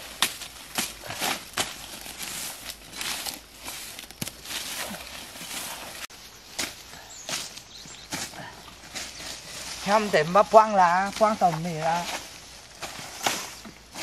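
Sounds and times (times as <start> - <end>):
machete knocking and scraping soil: 0.0 - 2.3, 11.0 - 14.0
dry leaves rustling and crackling: 0.0 - 14.0.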